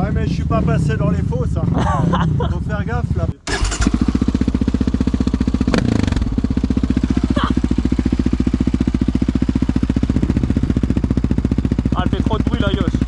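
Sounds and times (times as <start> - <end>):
quad engine idling: 2.8 - 13.0.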